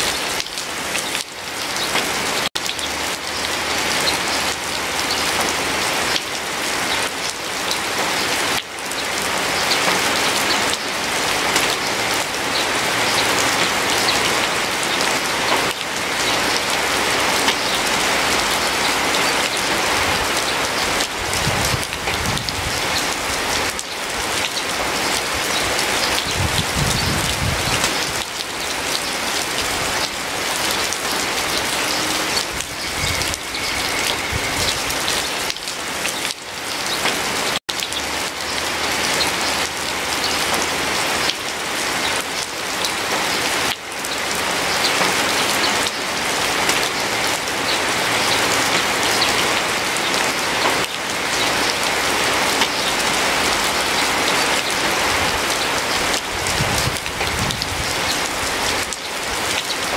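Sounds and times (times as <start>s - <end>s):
dense rain pattering: 0.0s - 59.9s.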